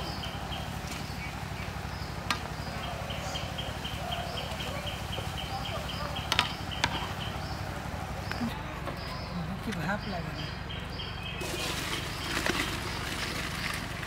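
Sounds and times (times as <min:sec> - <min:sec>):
noodles boiling in a wok: 0:11.4 - 0:14.0.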